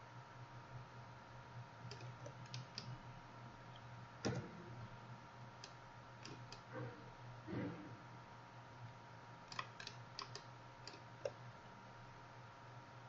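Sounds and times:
faint electrical hum: 0.0s - 13.0s
mouse and keyboard clicks: 1.9s - 2.9s, 5.6s - 6.7s, 9.5s - 11.4s.

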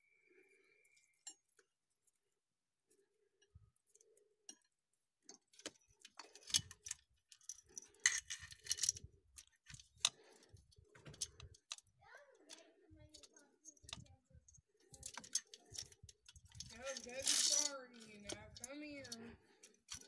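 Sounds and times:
metallic clicks and clinks: 5.3s - 20.0s.

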